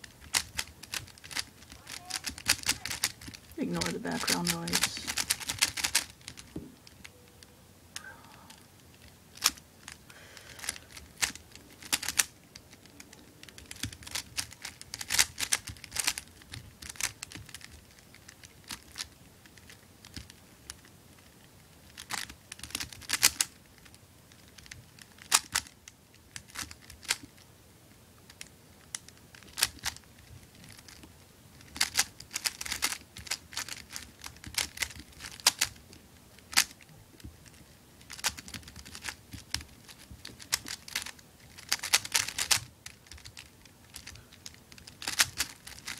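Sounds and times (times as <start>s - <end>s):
puzzle plastic clicks and clacks: 0.2s - 6.5s, 40.3s - 45.9s.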